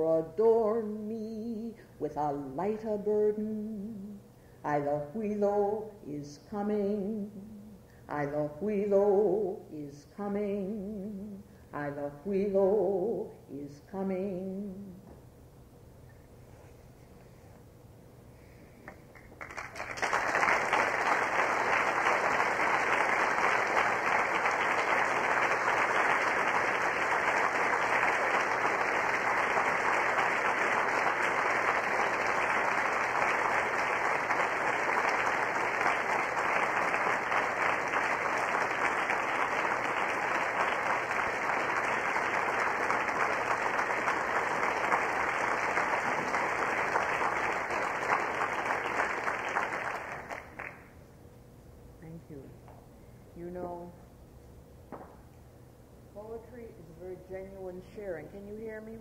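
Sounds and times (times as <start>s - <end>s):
audience applauding: 19.1s - 50.9s.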